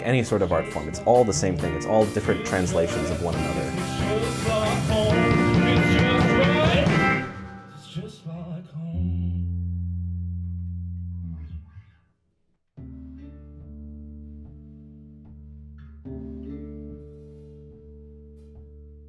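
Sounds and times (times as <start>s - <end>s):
rock band playing: 0.0s - 8.0s
man singing: 0.0s - 9.4s.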